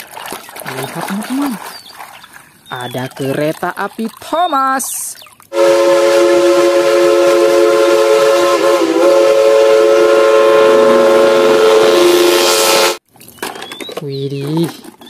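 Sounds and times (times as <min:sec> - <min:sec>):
steam locomotive chime whistle: 0:05.6 - 0:13.0.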